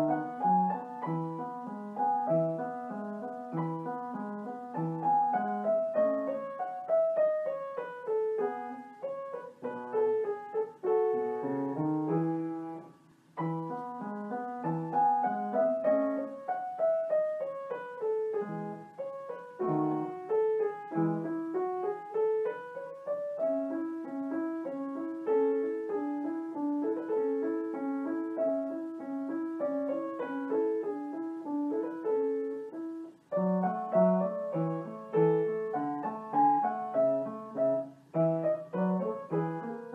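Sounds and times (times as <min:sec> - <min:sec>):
solo piano melody: 0:00.0 - 0:39.9.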